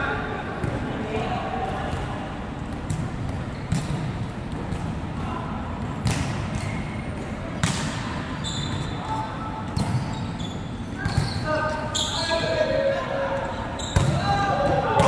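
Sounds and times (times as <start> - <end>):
volleyball hits echoing: 0.6 - 8.2, 13.9 - 15.0.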